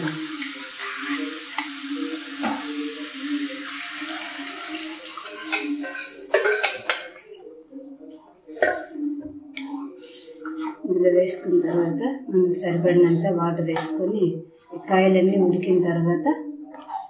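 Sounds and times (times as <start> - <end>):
liquid pouring and splashing: 0.0 - 7.0.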